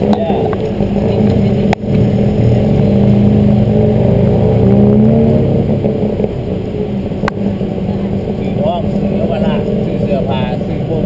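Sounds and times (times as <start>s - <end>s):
motor rickshaw engine running: 0.0s - 11.0s.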